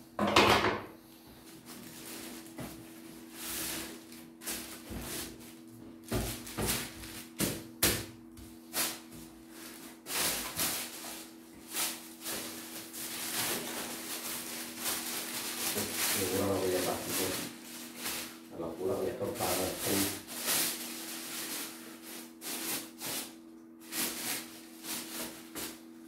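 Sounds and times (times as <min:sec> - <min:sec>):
plastic bag rustling: 0:01.5 - 0:07.5, 0:08.7 - 0:25.9.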